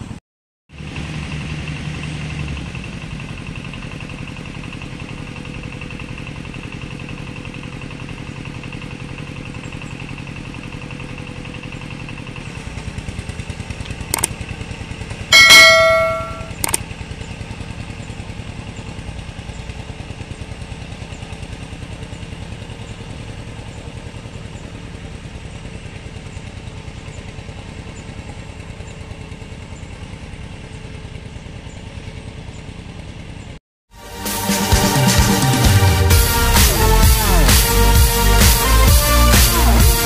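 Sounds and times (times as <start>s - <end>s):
diesel engine running steadily: 0.0s - 40.0s
click: 13.8s - 14.4s, 16.5s - 16.8s
bright chiming sound effect: 15.3s - 16.6s.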